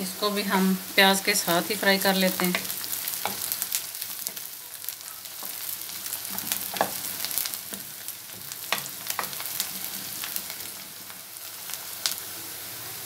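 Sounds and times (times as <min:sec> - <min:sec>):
vegetables sizzling in hot oil: 0:00.0 - 0:13.0
wooden spoon scraping a pan: 0:05.2 - 0:10.9.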